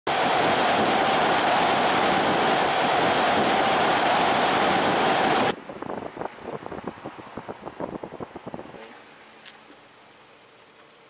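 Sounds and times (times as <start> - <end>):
steady whine: 0.1 - 5.6
wind and road noise: 0.1 - 11.0.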